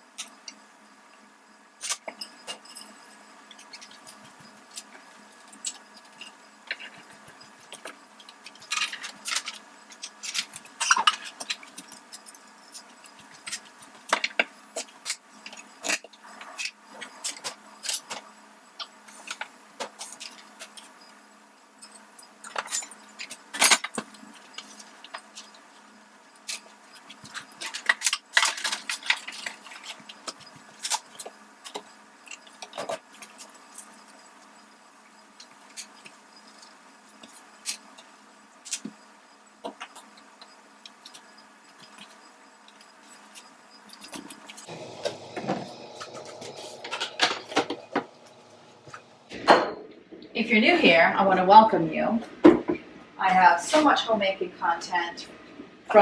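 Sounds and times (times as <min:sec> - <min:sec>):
kitchen items clattering on countertop: 0:44.0 - 0:48.2.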